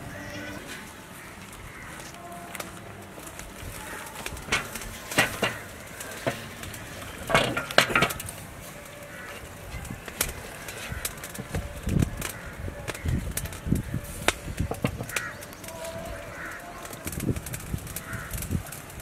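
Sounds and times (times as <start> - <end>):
metal pot clinks and knocks: 7.2 - 8.3.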